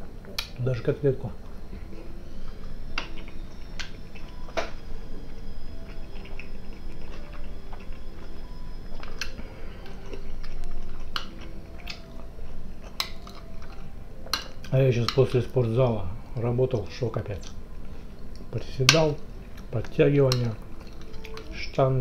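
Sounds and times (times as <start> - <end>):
chewing with wet mouth sounds: 1.9 - 15.8, 19.2 - 21.8.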